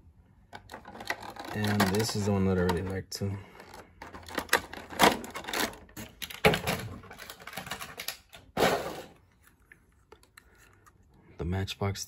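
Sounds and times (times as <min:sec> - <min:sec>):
toy cars clicking and clattering: 0:00.6 - 0:03.0, 0:03.6 - 0:08.5.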